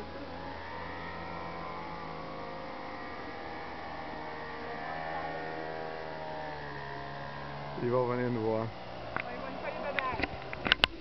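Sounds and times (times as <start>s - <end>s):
propeller engine drone overhead: 0.0s - 11.0s.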